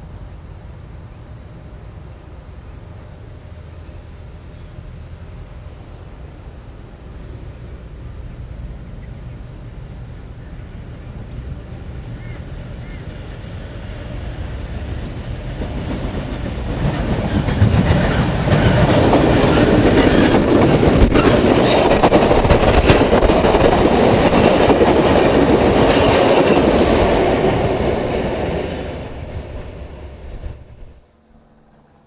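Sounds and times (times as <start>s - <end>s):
train rumble: 0.0s - 32.0s
train wheels clicking over rail joints: 11.1s - 32.0s.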